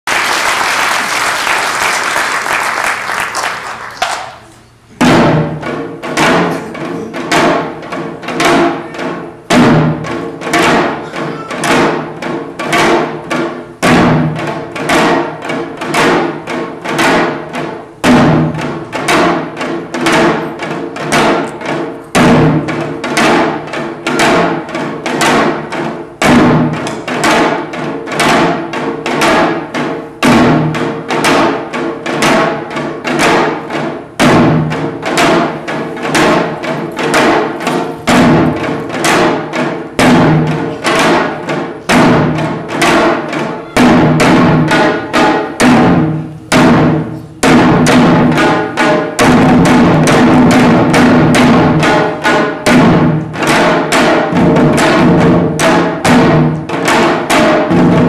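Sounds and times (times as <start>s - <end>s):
applause: 0.0s - 4.5s
hourglass drums played with sticks: 4.9s - 58.0s.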